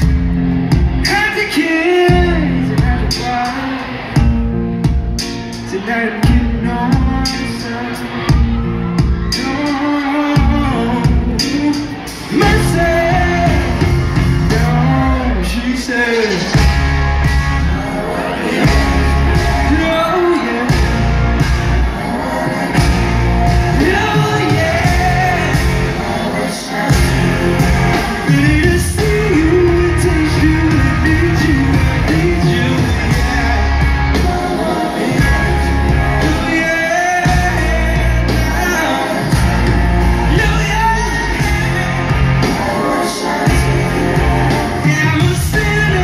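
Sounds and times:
live band music: 0:00.0 - 0:46.0
man singing: 0:01.0 - 0:04.4, 0:05.5 - 0:16.7, 0:17.3 - 0:46.0.

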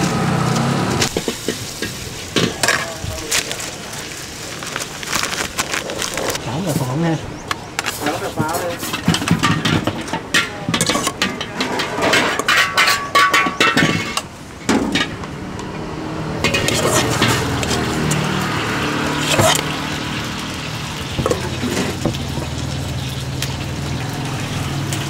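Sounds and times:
metal utensils clattering on pans: 0:00.5 - 0:03.8, 0:07.8 - 0:15.7, 0:16.4 - 0:25.0.

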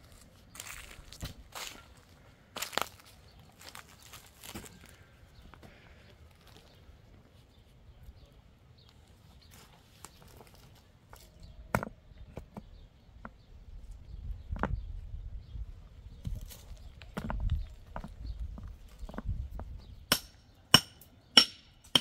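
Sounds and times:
rocks clacking and scraping: 0:16.2 - 0:19.8.

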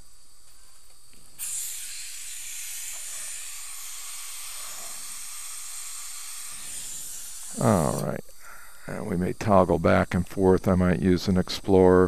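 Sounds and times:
dental suction hissing: 0:01.4 - 0:09.9.

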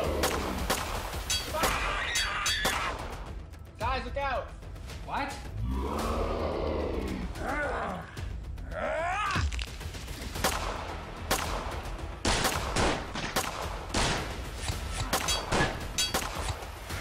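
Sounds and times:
pistol gunshots: 0:00.0 - 0:01.8, 0:10.4 - 0:16.6.

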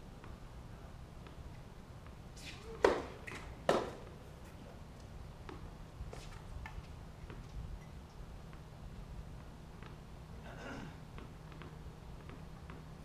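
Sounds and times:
tennis ball struck by racquets: 0:02.0 - 0:04.1.

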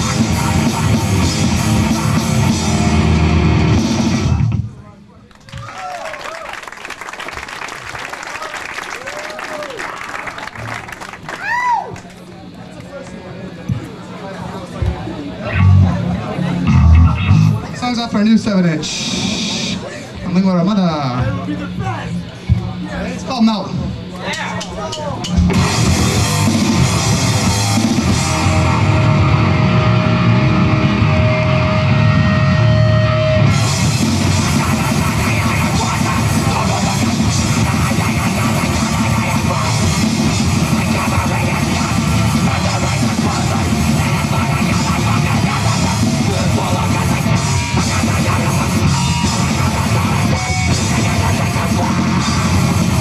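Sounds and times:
punk band playing live: 0:00.0 - 0:04.8, 0:15.4 - 0:19.9, 0:23.6 - 0:53.0
held guitar note ringing: 0:15.5 - 0:17.7.

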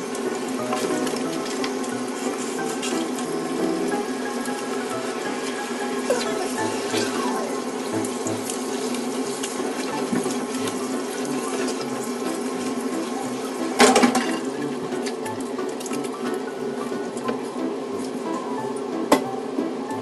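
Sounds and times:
shower sprayer water running: 0:00.0 - 0:20.0.

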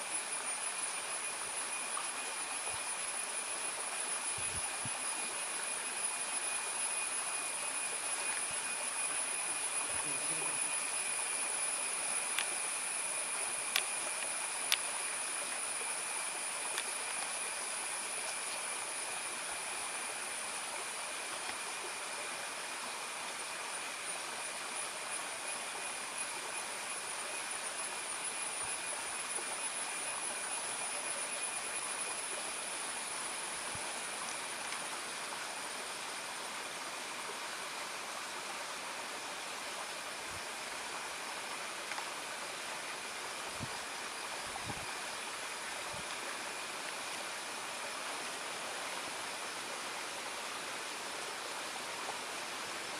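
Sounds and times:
forest ambience hiss: 0:00.0 - 0:52.9
high steady whine: 0:00.0 - 0:52.9
faint clicks: 0:13.7 - 0:14.9.

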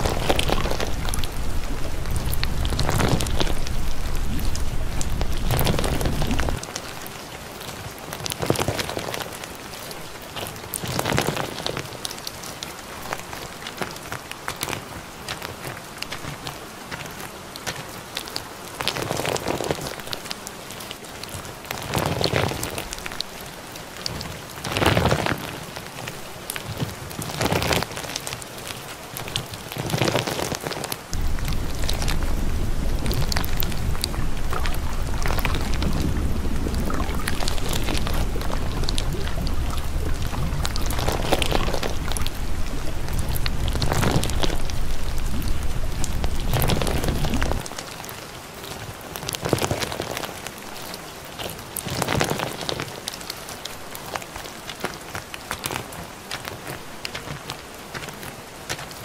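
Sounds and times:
deep rumble: 0:00.0 - 0:06.6, 0:31.1 - 0:47.8
steady rain falling: 0:00.0 - 0:59.0.

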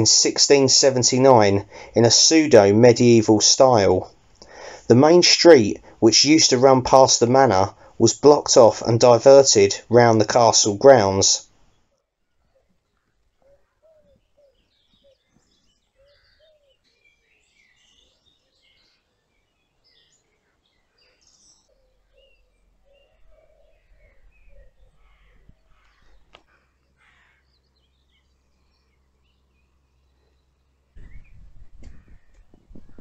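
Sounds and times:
birds chirping and trilling: 0:10.3 - 0:33.0
low bird call: 0:12.3 - 0:33.0.

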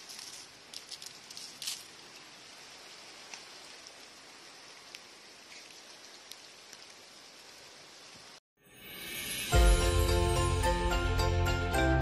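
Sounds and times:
rain falling: 0:00.0 - 0:08.4.

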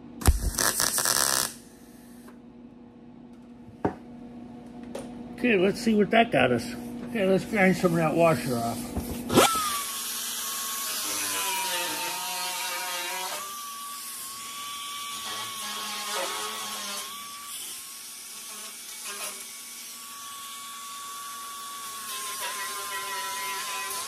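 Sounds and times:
die grinder grinding steel: 0:09.3 - 0:20.7, 0:21.6 - 0:24.0.

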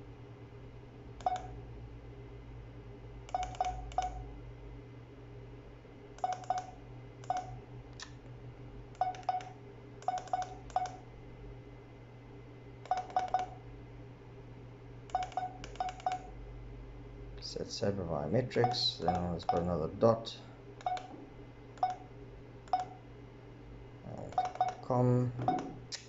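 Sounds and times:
keypad beeps: 0:01.2 - 0:01.5, 0:03.3 - 0:04.2, 0:06.2 - 0:07.6, 0:09.0 - 0:11.0, 0:12.9 - 0:13.6, 0:15.1 - 0:16.3, 0:18.6 - 0:19.7, 0:20.8 - 0:21.1, 0:21.8 - 0:22.1, 0:22.7 - 0:23.0, 0:24.3 - 0:24.8, 0:25.4 - 0:25.8.

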